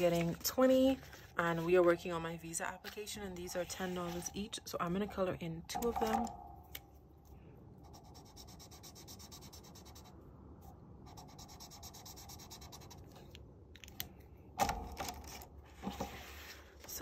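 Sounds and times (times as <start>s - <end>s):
marker scribbling on paper: 2.9s - 4.5s, 7.9s - 10.1s, 11.1s - 13.2s.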